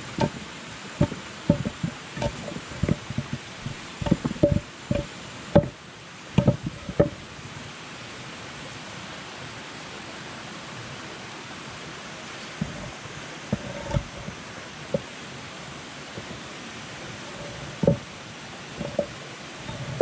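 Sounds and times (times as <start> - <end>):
steady rushing noise: 0.0 - 8.5, 10.7 - 20.0
rocks knocking together: 0.1 - 0.4, 1.0 - 5.7, 6.4 - 7.2.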